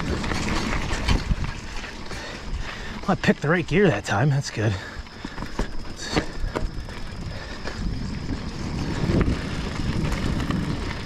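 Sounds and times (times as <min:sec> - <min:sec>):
bike clicks and knocks: 0:00.0 - 0:03.7, 0:05.0 - 0:11.0
tyres rumbling on trail: 0:00.0 - 0:11.0
wind on microphone: 0:06.3 - 0:11.0.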